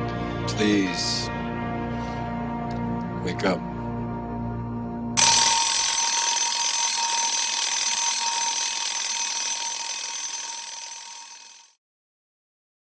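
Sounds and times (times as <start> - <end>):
alarm bell ringing: 5.2 - 11.8.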